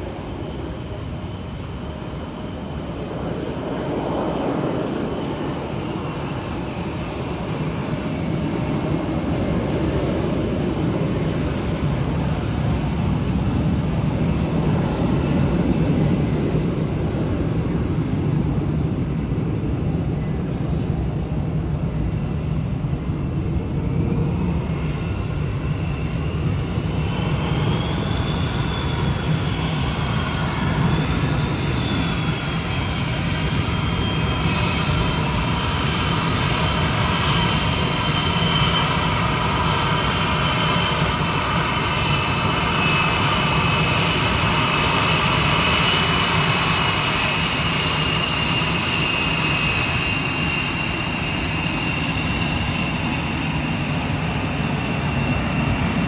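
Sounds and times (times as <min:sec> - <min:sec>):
high wavering jet whine: 0:00.0 - 0:56.0
jet engines low rumble: 0:00.0 - 0:56.0.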